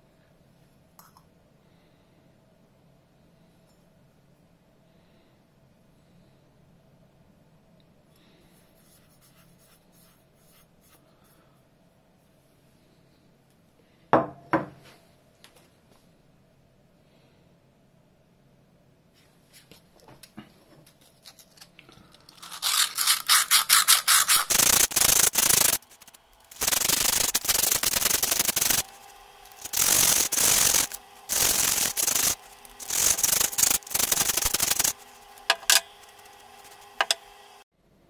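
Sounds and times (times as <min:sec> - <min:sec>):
sandpaper rubbing inside brass bell: 0:22.4 - 0:37.2.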